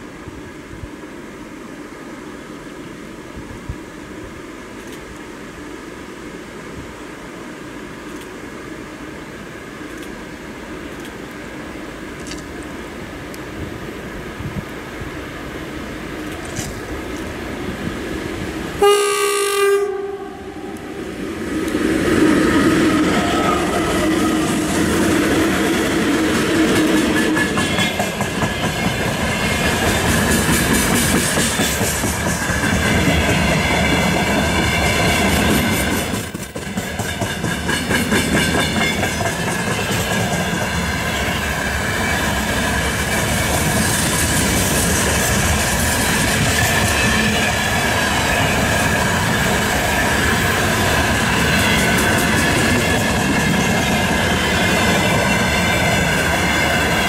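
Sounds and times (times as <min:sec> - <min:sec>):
freight train rolling past: 0:05.6 - 0:57.0
train horn blast: 0:18.8 - 0:21.0
wheels clattering over rail joints: 0:21.7 - 0:57.0.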